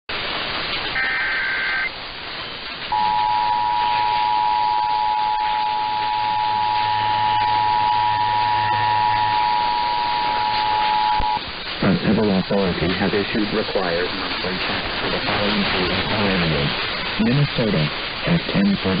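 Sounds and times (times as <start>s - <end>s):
radio static hiss: 0.1s - 19.0s
steady two-tone attention signal: 2.9s - 11.4s
warbling digital header data: 2.9s - 16.5s.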